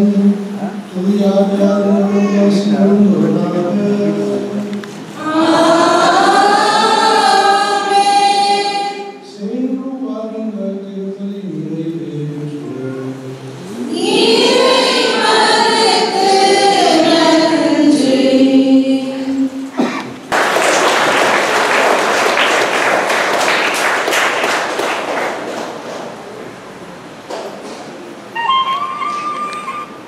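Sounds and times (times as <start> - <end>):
choir singing held notes: 0.0 - 9.6, 11.9 - 19.9
congregation applauding: 20.2 - 26.4.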